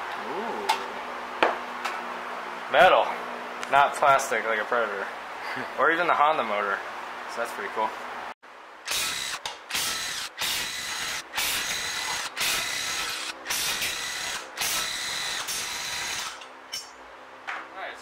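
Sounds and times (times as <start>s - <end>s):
impact wrench hammering: 8.9s - 16.9s.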